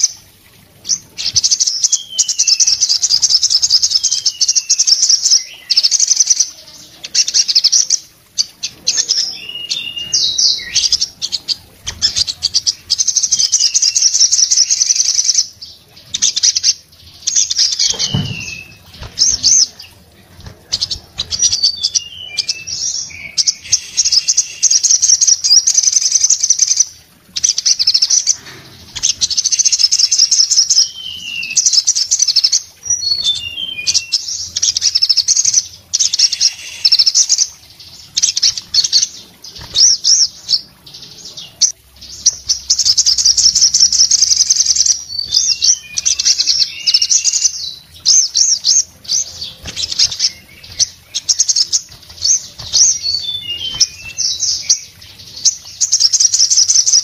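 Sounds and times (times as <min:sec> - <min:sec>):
bird singing buzzing trills: 0:00.8 - 0:57.0
wing flutter with a knock: 0:17.8 - 0:19.4.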